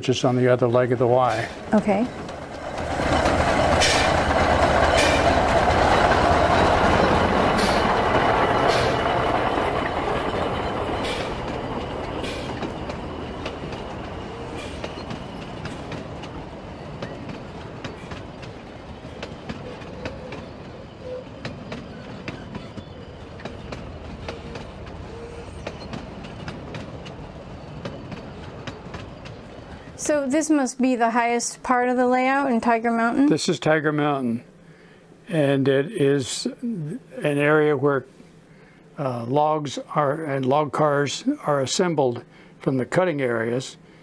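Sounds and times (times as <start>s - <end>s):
wheels clicking on track: 0.1s - 30.3s
steam hiss: 7.5s - 9.2s.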